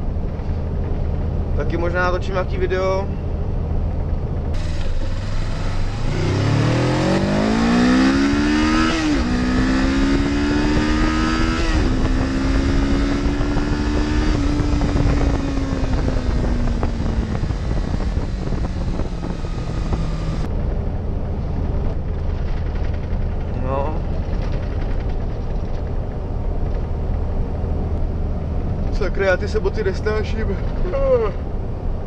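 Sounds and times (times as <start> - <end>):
steady rushing noise: 0.0 - 32.0
motorcycle engine accelerating: 3.8 - 29.1.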